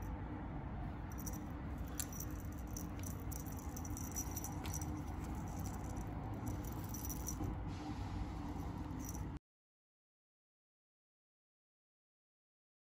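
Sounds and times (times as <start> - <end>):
steady low hum: 0.0 - 9.4
ribbon streamers rustling and rattling: 1.2 - 7.5.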